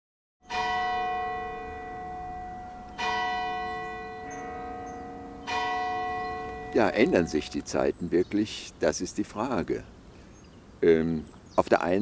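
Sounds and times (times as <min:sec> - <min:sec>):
bell ringing: 0:00.5 - 0:07.8.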